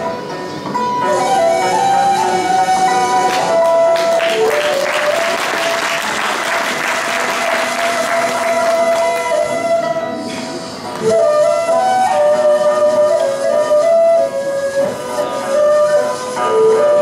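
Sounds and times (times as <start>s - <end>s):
instrumental music: 0.0s - 17.0s
audience clapping: 3.3s - 9.4s.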